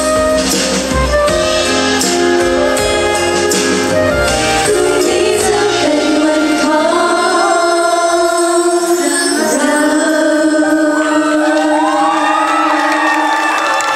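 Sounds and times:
pop backing track: 0.0 - 12.5
women singing into microphones: 4.5 - 13.9.

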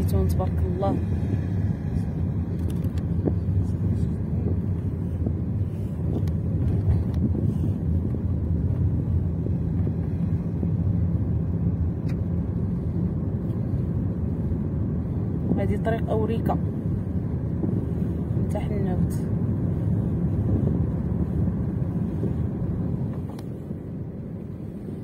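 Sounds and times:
car engine and tyres rumbling: 0.0 - 25.0.

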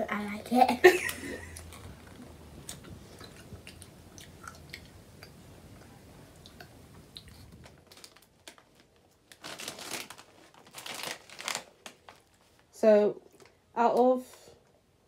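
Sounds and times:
plastic packets crinkling: 7.3 - 12.7.

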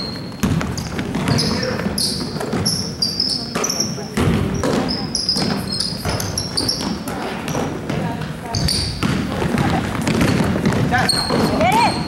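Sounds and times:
basketball bouncing on hardwood: 0.0 - 1.6, 3.5 - 12.0
shoe squeaks: 0.0 - 7.8, 8.4 - 9.1, 10.1 - 12.0
indistinct voices echoing: 1.1 - 12.0.

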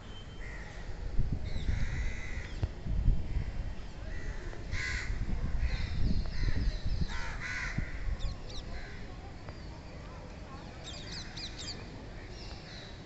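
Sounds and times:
crows cawing: 4.2 - 5.2, 7.1 - 8.0.

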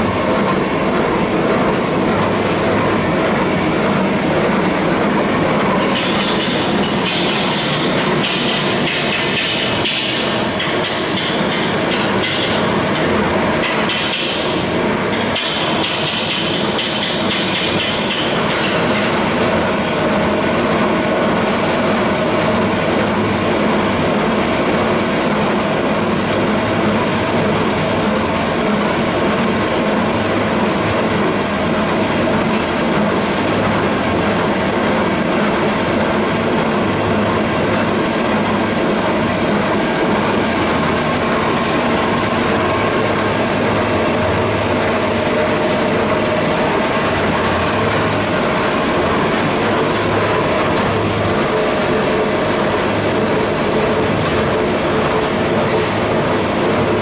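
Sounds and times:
mechanical clatter: 5.7 - 20.2.

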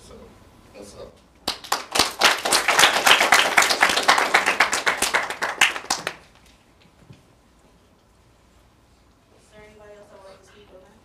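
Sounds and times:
audience clapping: 1.4 - 6.6.

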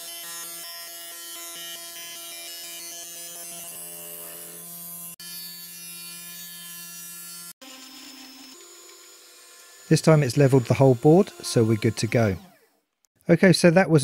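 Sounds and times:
router spindle motor running: 7.4 - 12.8.

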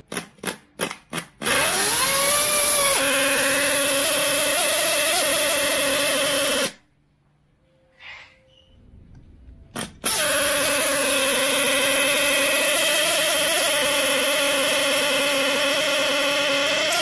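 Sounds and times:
model engine high-pitched buzz: 1.5 - 6.8, 10.0 - 17.0.

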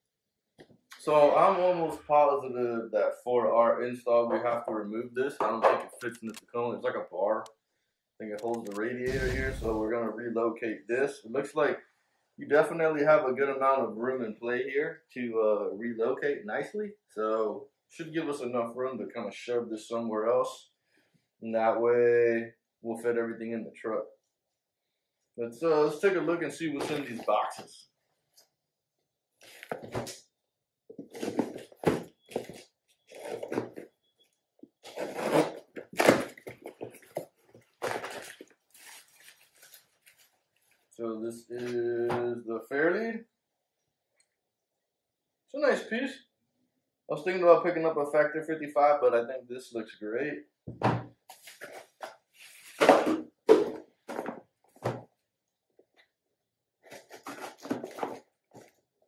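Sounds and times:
cardboard scraping: 9.0 - 9.9, 31.0 - 33.9, 34.9 - 40.3, 56.8 - 58.7.

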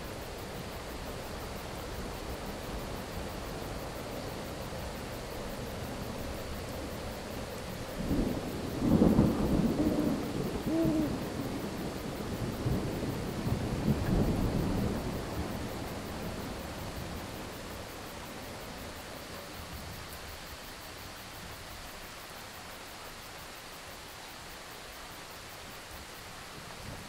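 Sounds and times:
steady rain: 0.0 - 27.0
thunder rumbling: 7.8 - 18.0.

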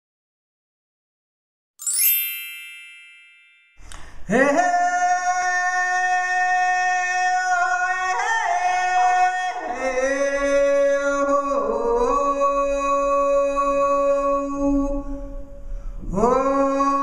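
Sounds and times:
high bell strike: 1.8 - 4.1.

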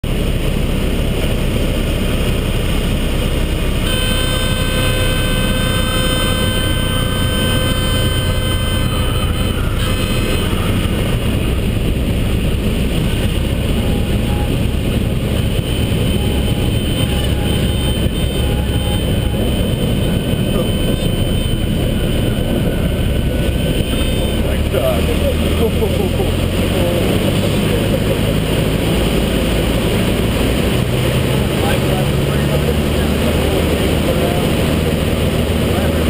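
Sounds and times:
aircraft engine and propeller drone: 0.0 - 36.0
steady high tone: 3.8 - 14.8, 15.4 - 26.5.

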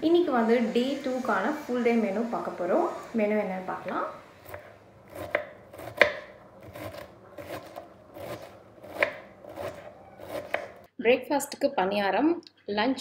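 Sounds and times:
knife cutting cabbage on board: 4.4 - 10.9.

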